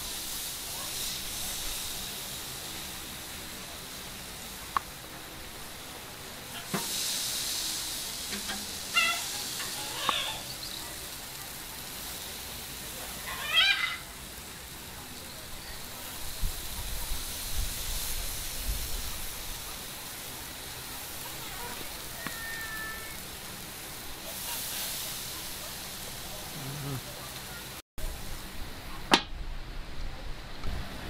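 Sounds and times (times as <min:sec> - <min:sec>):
meat sizzling on grill: 0:00.0 - 0:31.0
short high call: 0:22.1 - 0:23.2.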